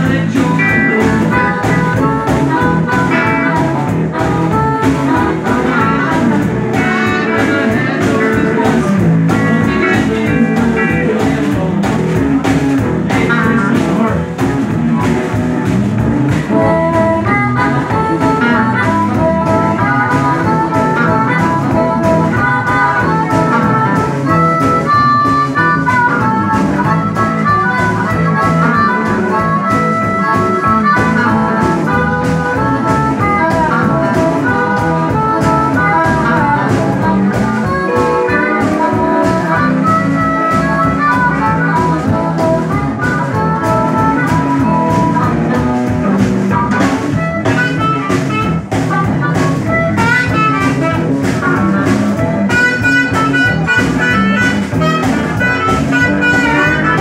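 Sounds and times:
drum kit steady beat: 0.0 - 57.0
electric guitar: 0.0 - 57.0
harmonica: 0.0 - 57.0.

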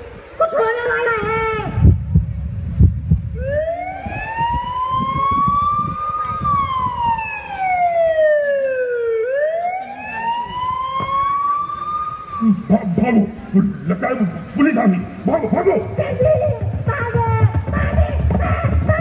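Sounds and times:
police siren wailing: 3.4 - 13.3.

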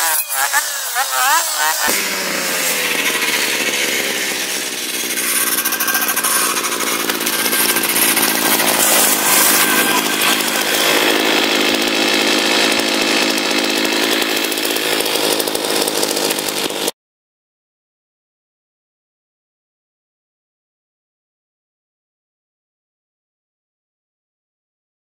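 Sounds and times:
brushcutter engine running: 0.0 - 16.9.

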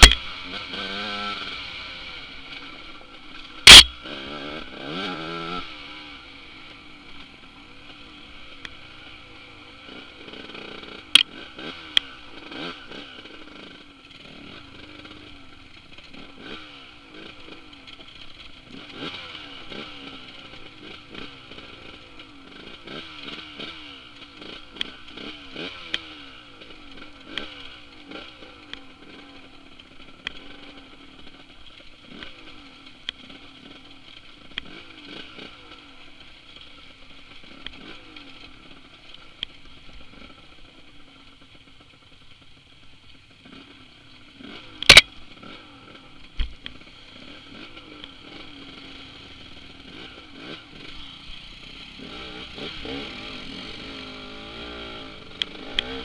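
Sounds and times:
dirt bike engine revving: 0.0 - 41.1, 43.3 - 56.0
sharp clicks and clatter: 44.4 - 45.6.

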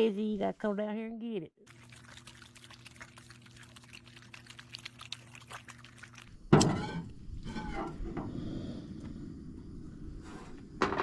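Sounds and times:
opossum chewing with wet smacking: 1.7 - 6.3.

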